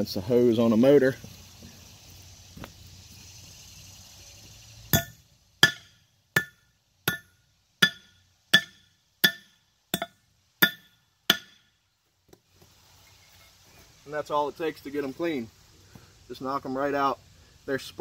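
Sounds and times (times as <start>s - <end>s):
hammer striking metal: 4.9s - 11.7s.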